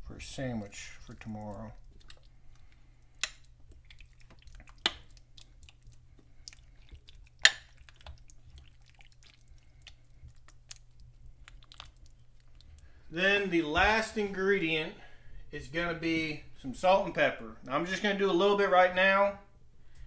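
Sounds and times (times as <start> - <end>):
stew squelching when stirred: 0.1 - 14.8.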